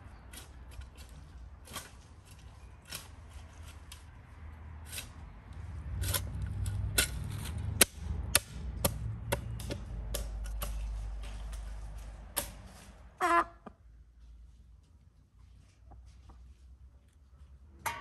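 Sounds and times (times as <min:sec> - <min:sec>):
spade digging soil: 0:00.0 - 0:08.0.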